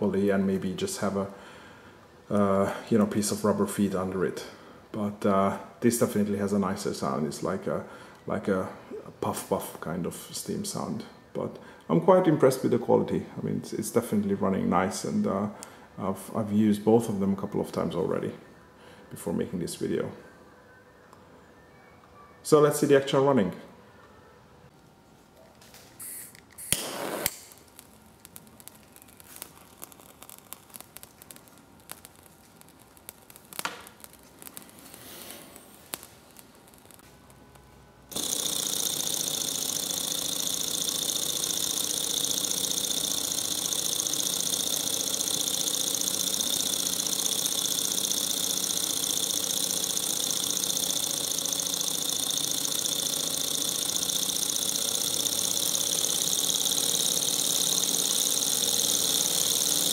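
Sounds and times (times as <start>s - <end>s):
engine whirring rattle: 38.1s - 59.9s.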